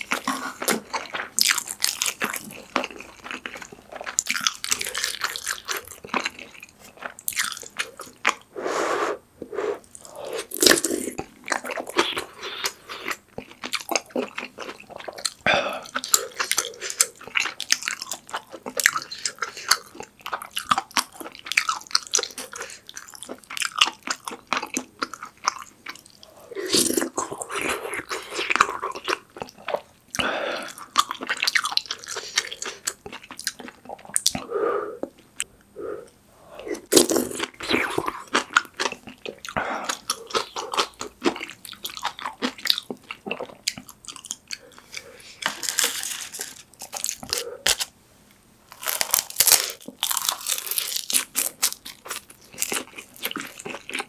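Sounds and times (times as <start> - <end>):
chewing with mouth smacks: 36.7 - 45.9, 49.4 - 54.0.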